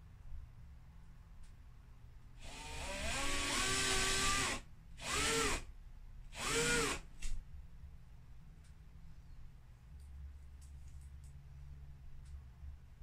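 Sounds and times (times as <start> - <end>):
cordless drill drilling into wall: 2.4 - 5.7, 6.3 - 7.0.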